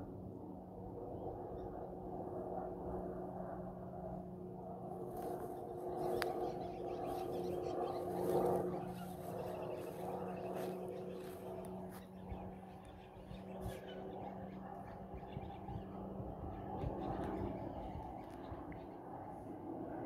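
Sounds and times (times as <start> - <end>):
distant aircraft drone: 0.0 - 20.0
faint bird calls: 5.2 - 18.9.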